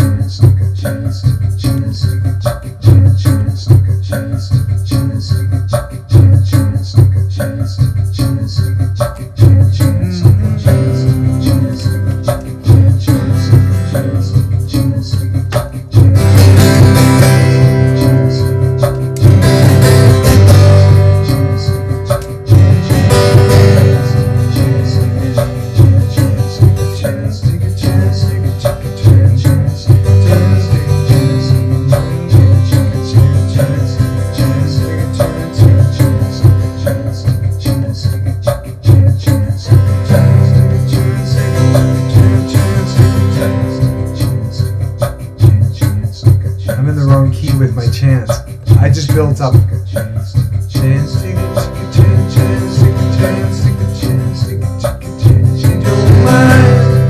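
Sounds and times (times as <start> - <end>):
acoustic guitar strumming: 9.8 - 37.8, 39.6 - 45.9, 50.8 - 57.0.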